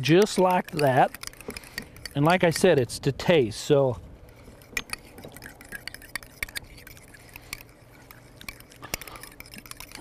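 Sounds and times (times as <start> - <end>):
spoon clinking against bowl: 0.0 - 2.8
spoon stirring thick sauce: 0.0 - 10.0.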